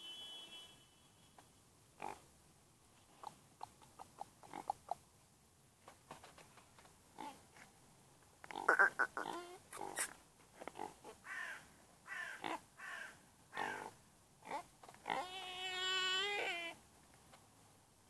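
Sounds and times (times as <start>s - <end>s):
harsh animal calls: 8.5s - 10.2s.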